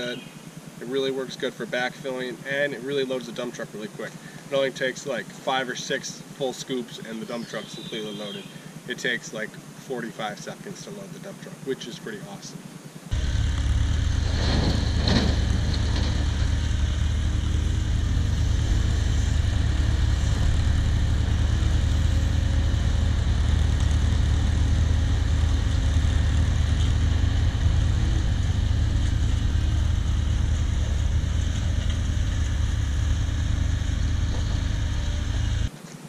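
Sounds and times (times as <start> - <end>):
excavator diesel engine running: 13.1 - 35.7.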